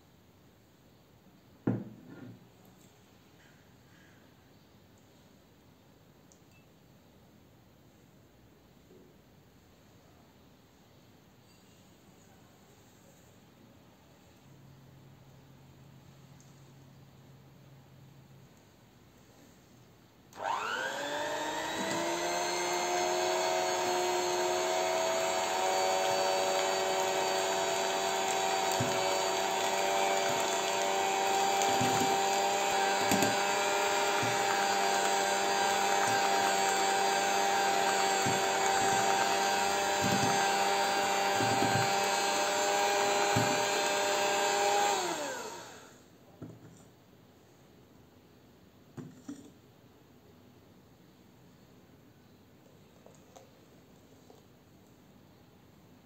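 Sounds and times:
electric hand mixer whining: 20.4s - 45.9s.

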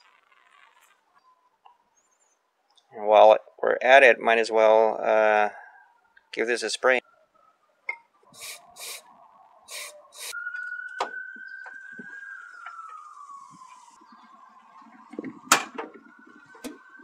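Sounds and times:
aerosol spray hiss: 8.4s - 9.0s, 9.7s - 10.3s.

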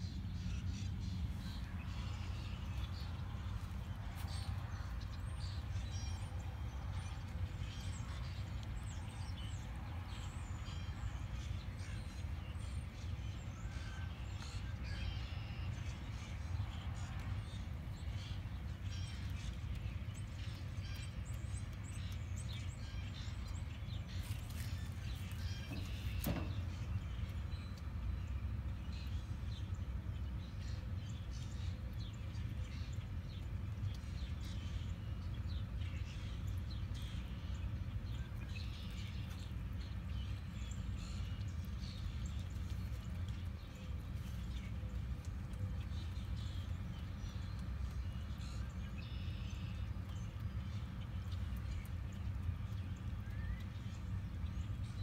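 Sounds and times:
steady low rumble: 0.0s - 13.6s
wild birds chirping: 0.0s - 55.0s.

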